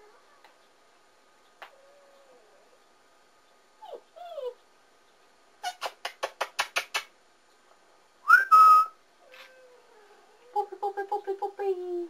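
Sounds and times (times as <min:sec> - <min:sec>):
puppy whimpering: 0:03.8 - 0:04.6.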